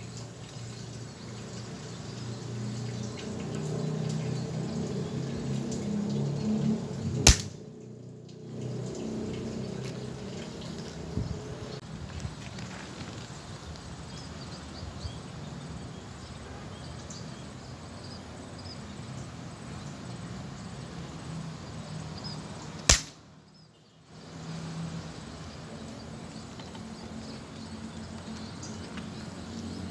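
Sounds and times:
air rifle shot: 0:07.2 - 0:07.6, 0:22.9 - 0:23.2.

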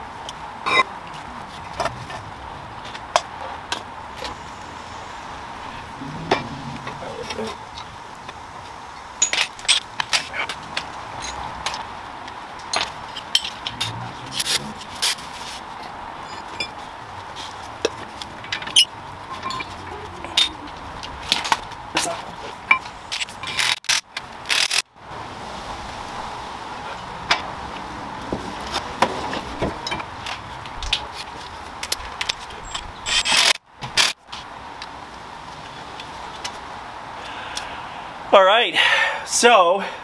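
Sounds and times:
steady hiss: 0:04.1 - 0:11.1
tools knocking and clinking: 0:09.2 - 0:10.3, 0:12.6 - 0:13.9.

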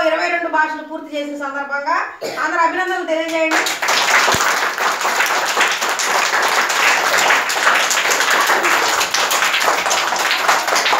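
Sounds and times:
children applauding: 0:03.5 - 0:10.9.

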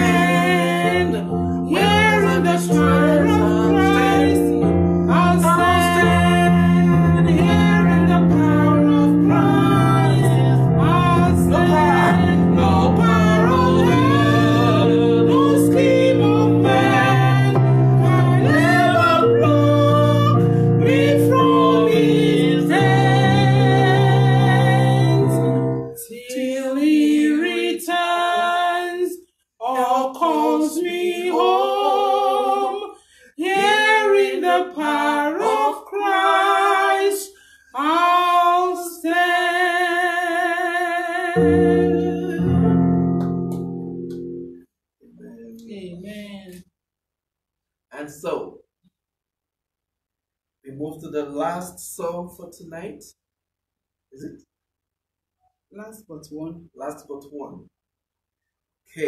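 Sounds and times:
electronic keyboard chords: 0:00.0 - 0:26.0, 0:41.4 - 0:44.6
woman singing with vibrato: 0:00.0 - 0:28.6, 0:30.4 - 0:37.1, 0:40.2 - 0:42.8.

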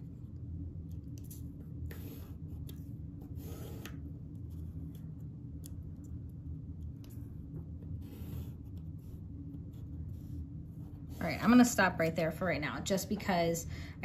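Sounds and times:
steady low hum: 0:00.0 - 0:14.0
pencil and ruler scraping paper: 0:03.3 - 0:04.0, 0:08.0 - 0:09.2.

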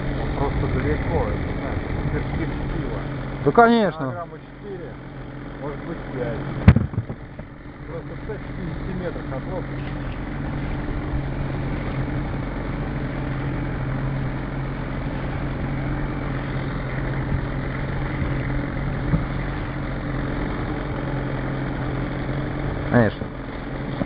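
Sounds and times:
boat motor running: 0:00.0 - 0:24.0
sharp knock: 0:06.6 - 0:07.2.

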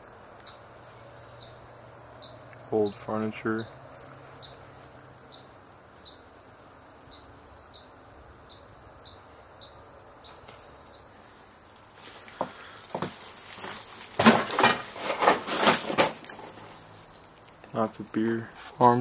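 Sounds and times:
cricket chirping: 0:00.0 - 0:19.0
knocks and rustles: 0:11.9 - 0:17.4.

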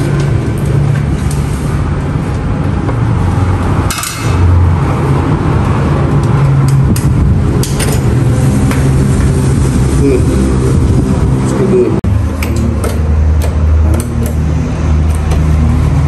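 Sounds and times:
loud low hum: 0:00.0 - 0:16.0
fuse holder clicks and knocks: 0:12.4 - 0:14.5.

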